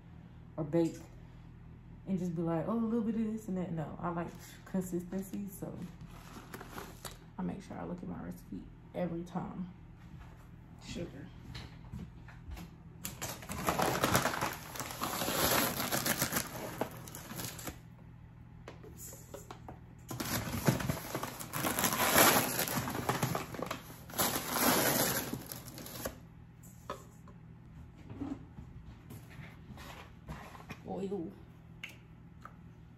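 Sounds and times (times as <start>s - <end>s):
bag crinkling: 13.2s - 17.8s, 20.1s - 26.2s.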